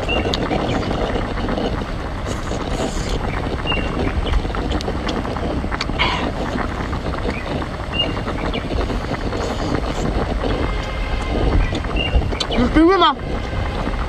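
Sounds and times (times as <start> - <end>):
wind rumble on microphone: 0.0 - 14.0.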